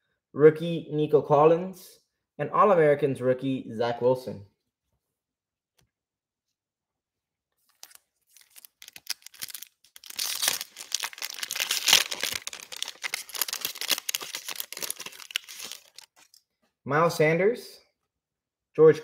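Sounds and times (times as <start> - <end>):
foil wrapper crinkling and tearing: 7.7 - 16.4.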